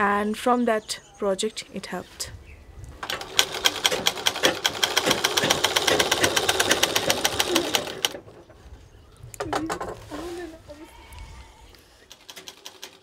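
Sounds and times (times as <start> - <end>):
sewing machine stitching: 3.0 - 8.2.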